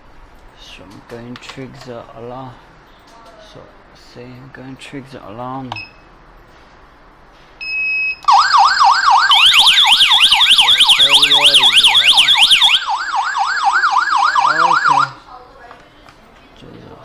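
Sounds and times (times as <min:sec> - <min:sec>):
alarm beep: 0:07.6 - 0:15.2
higher warbling siren: 0:08.3 - 0:15.2
warbling alarm siren: 0:08.3 - 0:15.2.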